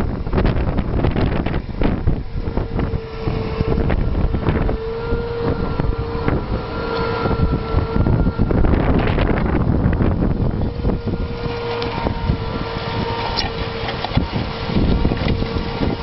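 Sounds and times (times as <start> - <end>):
steady whine: 0.0 - 16.0
tractor engine rumble: 0.0 - 16.0
wind buffeting microphone: 0.0 - 16.0.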